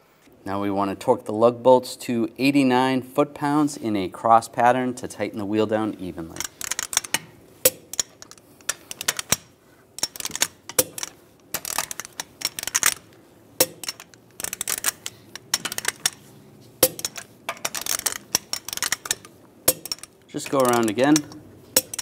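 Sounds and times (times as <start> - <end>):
socket clinking and rattling: 6.2 - 22.0
torque wrench clicking: 6.3 - 16.2, 16.8 - 22.0.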